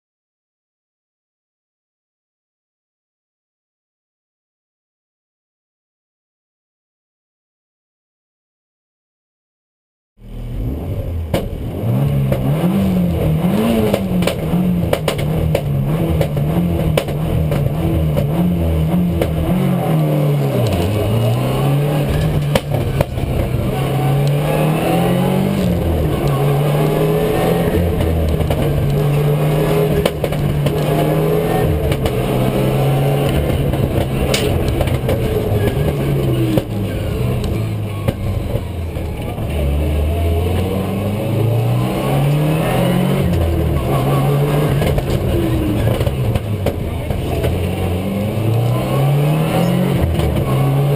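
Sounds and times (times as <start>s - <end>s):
rally car engine revving: 10.2s - 50.9s.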